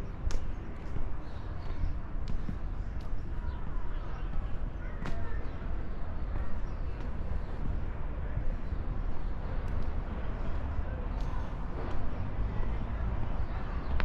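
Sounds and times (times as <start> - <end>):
low outdoor rumble: 0.0 - 14.0
footsteps on stone paving: 0.4 - 5.6.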